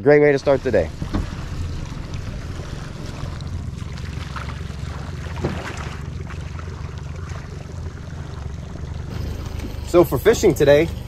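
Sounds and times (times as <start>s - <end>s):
wind rumble on microphone: 0.4s - 8.2s.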